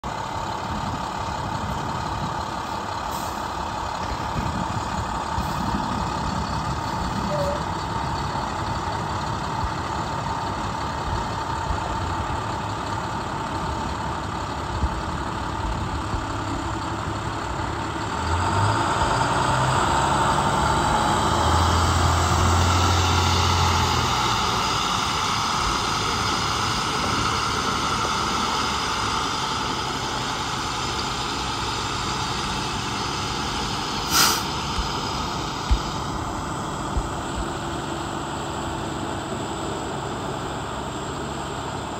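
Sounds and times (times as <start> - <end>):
diesel truck engine: 0.0 - 41.9
sharp hiss: 33.9 - 34.7.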